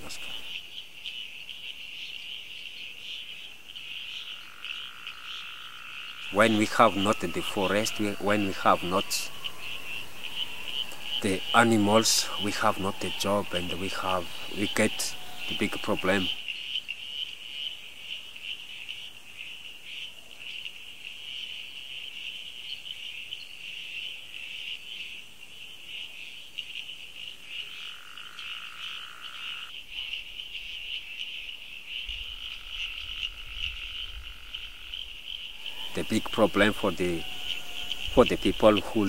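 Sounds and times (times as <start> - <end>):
low steady animal tone: 0.0 - 39.0.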